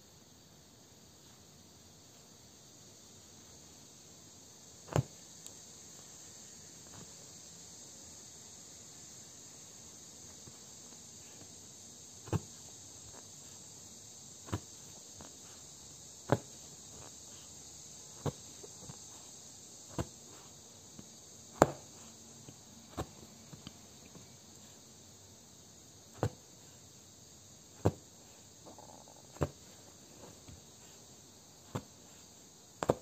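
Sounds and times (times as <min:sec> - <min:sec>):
faint hiss: 0:00.0 - 0:33.0
punch needle tapping fabric: 0:04.8 - 0:05.2, 0:12.2 - 0:13.6, 0:14.4 - 0:17.5, 0:19.9 - 0:24.2, 0:26.1 - 0:26.5, 0:27.8 - 0:33.0.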